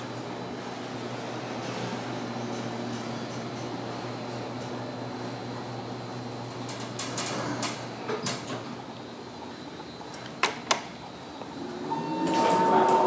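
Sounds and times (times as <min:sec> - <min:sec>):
elevator doors sliding closed: 0:10.1 - 0:13.0.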